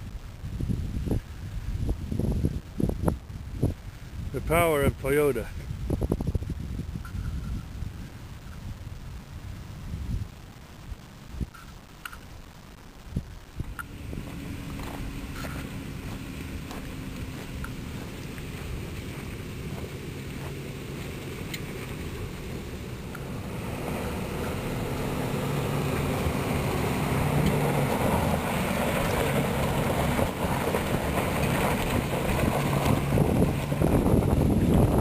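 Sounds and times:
wind on microphone: 0:00.0 - 0:35.0
vehicle engines climbing: 0:13.6 - 0:35.0
tyres crunching over stones: 0:13.8 - 0:23.3.

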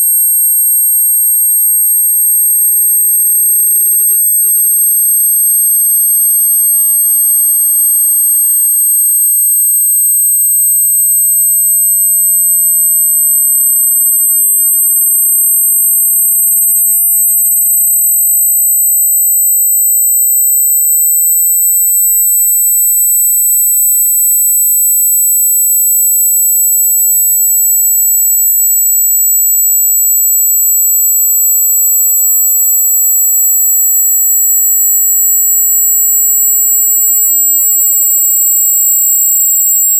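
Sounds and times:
high-pitched test tones: 0:03.9 - 0:29.8.

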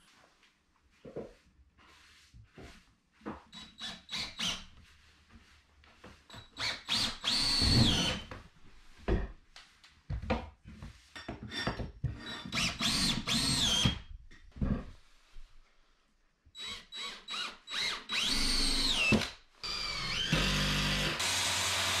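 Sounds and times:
cordless drill drilling into wood: 0:06.6 - 0:08.3, 0:12.6 - 0:14.0, 0:16.6 - 0:22.0.

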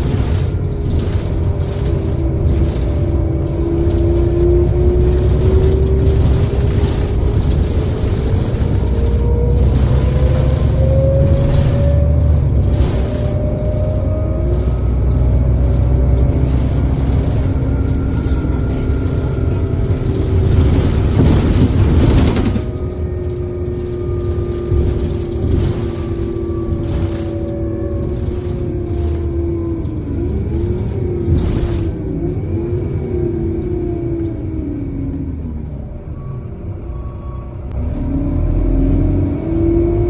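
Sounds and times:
loud rushing noise: 0:00.0 - 0:29.3
bus engine idling: 0:00.0 - 0:37.7.

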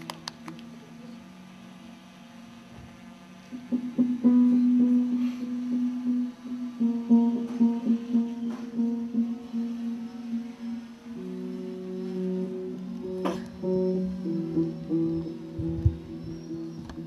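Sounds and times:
low held tone: 0:00.0 - 0:17.0
guitar plucking low notes: 0:03.6 - 0:17.0.

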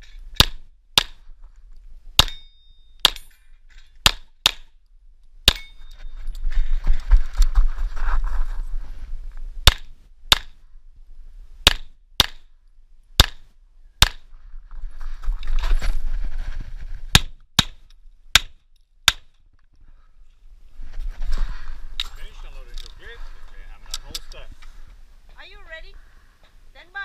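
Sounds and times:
rustling noise: 0:05.8 - 0:09.6, 0:14.3 - 0:17.2, 0:20.3 - 0:25.6.

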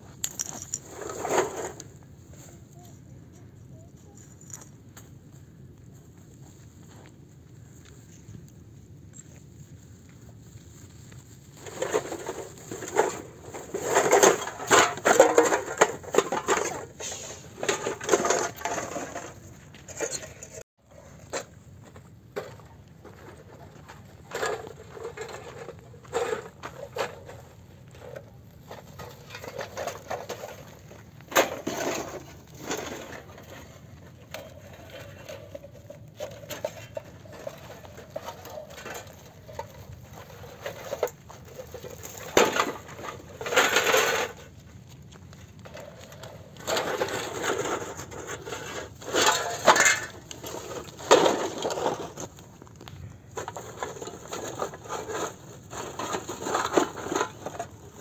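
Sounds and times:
scraping or crunching: 0:00.0 - 0:58.0
objects knocking and clinking: 0:00.2 - 0:00.8.

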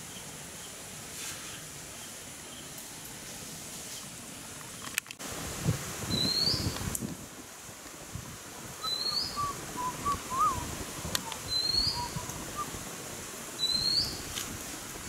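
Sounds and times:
bird short rising whistle: 0:08.8 - 0:10.6, 0:11.5 - 0:12.7, 0:13.6 - 0:14.2.

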